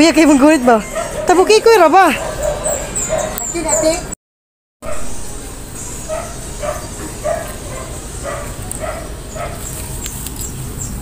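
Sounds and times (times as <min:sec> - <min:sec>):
dog barking: 0:00.3 - 0:04.0, 0:04.8 - 0:05.1, 0:06.1 - 0:09.7.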